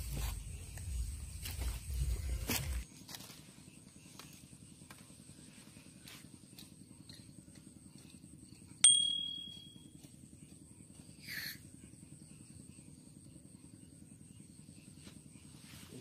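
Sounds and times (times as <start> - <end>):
sharp metallic clink ringing: 8.8 - 10.0.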